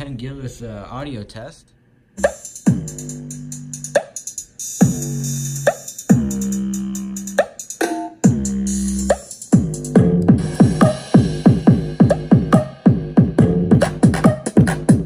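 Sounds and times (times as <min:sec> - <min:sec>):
electronic dance music: 0:02.2 - 0:15.0.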